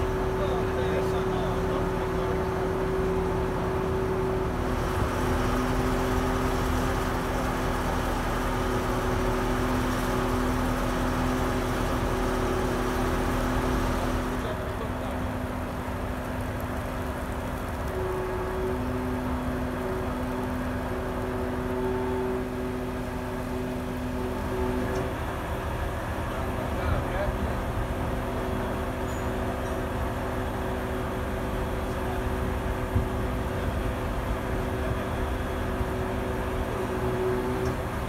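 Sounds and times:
hydraulic crane humming: 0.0 - 38.0.

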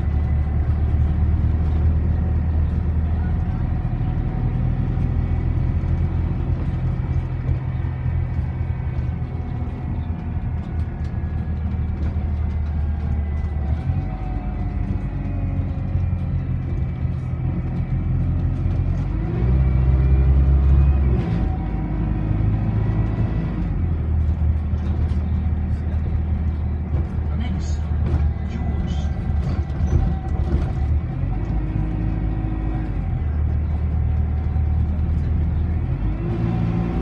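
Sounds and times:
bus engine drone: 0.0 - 37.0
road rumble: 0.0 - 37.0.

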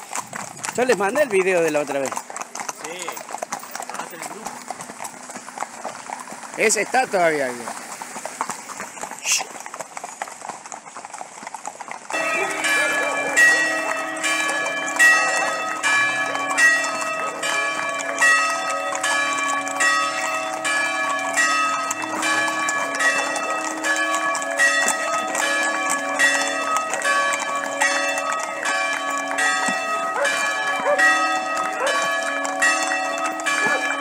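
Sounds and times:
church bells pealing: 12.1 - 34.0.

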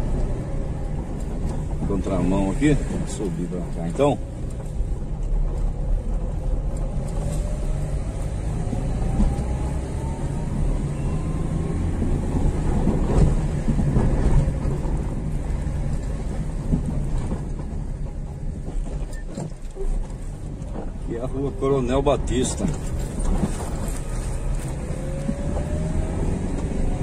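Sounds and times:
engine and road noise rumble: 0.0 - 27.0
engine whine rising in pitch: 6.5 - 13.3, 23.8 - 27.0.

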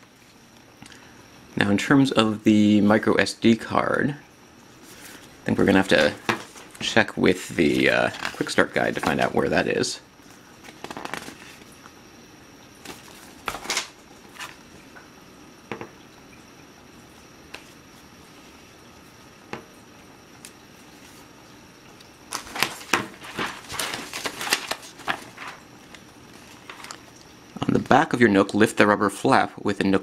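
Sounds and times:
handling paper and cardboard: 4.8 - 9.8, 10.6 - 11.8, 12.8 - 14.7, 22.3 - 27.2.

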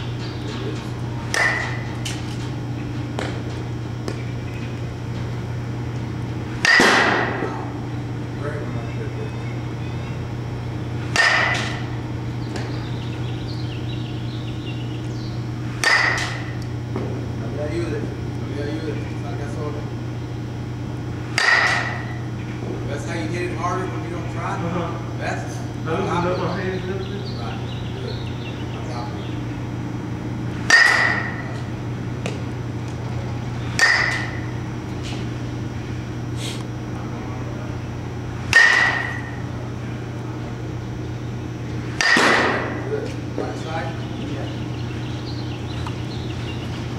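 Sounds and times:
steady low hum: 0.0 - 46.9
baseball bat hitting ball: 1.3 - 2.0, 6.6 - 7.6, 11.1 - 11.9, 15.8 - 16.6, 21.3 - 22.2, 30.6 - 32.4, 33.8 - 34.6, 38.5 - 39.5, 42.0 - 42.9.

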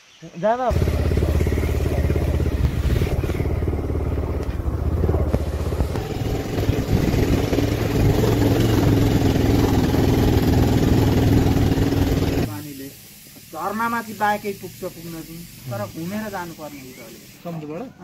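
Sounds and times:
motorcycle engine running: 0.7 - 12.5.

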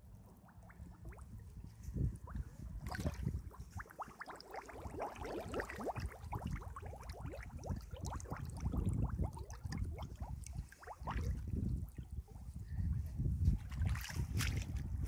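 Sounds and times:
bubbling pops: 0.3 - 1.4, 2.1 - 12.1
wading through mud in boots: 13.6 - 15.0.

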